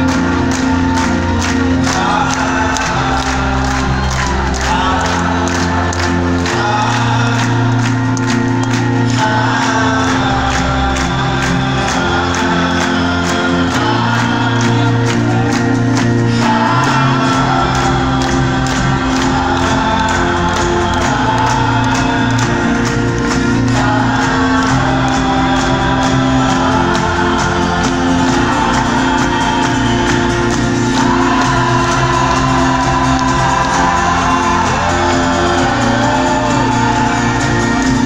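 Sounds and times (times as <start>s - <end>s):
person singing: 0.0s - 38.0s
steady drumbeat: 9.2s - 38.0s.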